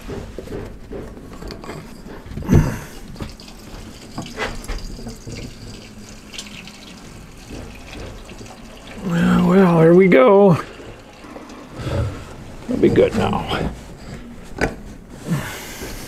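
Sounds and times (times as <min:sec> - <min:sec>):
gasoline pouring into tank: 0:02.4 - 0:13.2.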